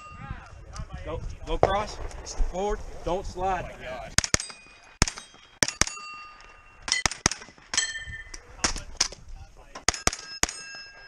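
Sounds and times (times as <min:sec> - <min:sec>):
carbine gunshots: 0:01.6 - 0:03.1, 0:04.1 - 0:06.2, 0:06.8 - 0:08.0
steel targets ringing: 0:04.3 - 0:08.4, 0:09.9 - 0:11.0.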